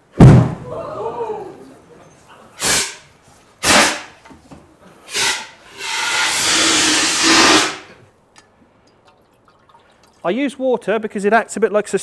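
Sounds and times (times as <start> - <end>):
sudden bang: 0.2 - 0.7
steady rushing hiss: 5.1 - 7.9.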